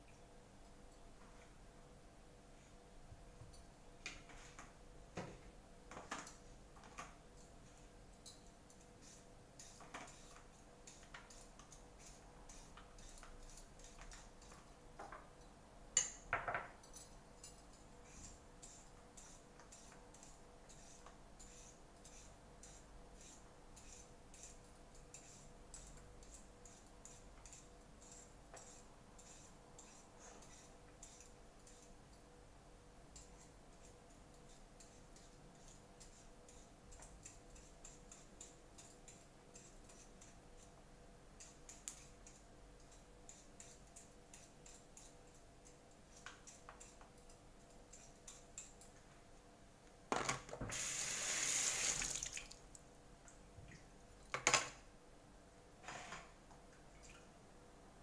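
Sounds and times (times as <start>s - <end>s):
kitchen tap running: 50.7s - 52.6s.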